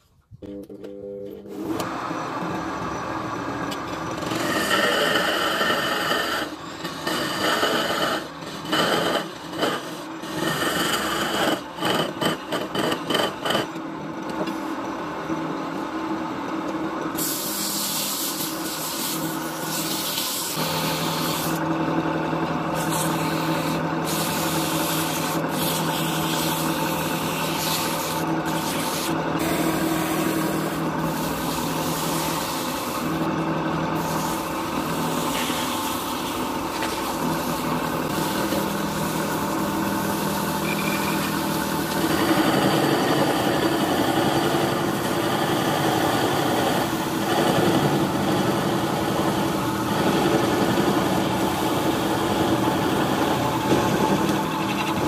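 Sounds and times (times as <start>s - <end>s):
lathe motor hum: 1.5s - 17.5s, 18.5s - 55.0s
hand sanding on spinning wood: 22.8s - 33.3s.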